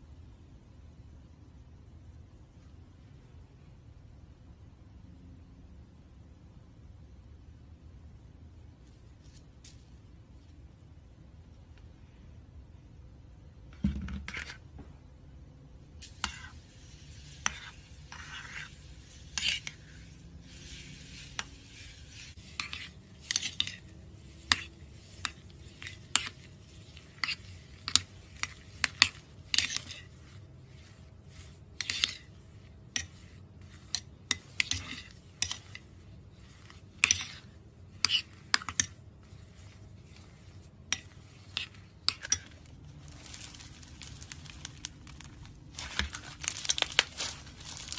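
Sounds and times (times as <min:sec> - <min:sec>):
slime crackling and squishing: 0:36.3 - 0:47.9.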